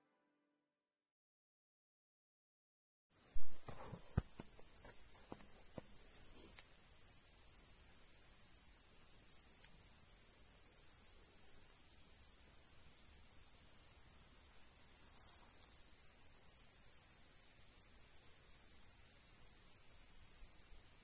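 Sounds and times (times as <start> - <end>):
high-pitched hiss: 3.2 - 7.8
crickets chirping: 3.2 - 21.0.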